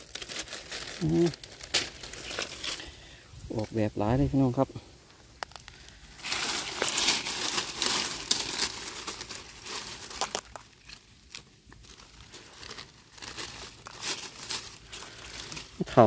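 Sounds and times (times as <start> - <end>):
dry material crinkling: 0.0 - 3.7, 5.1 - 16.0.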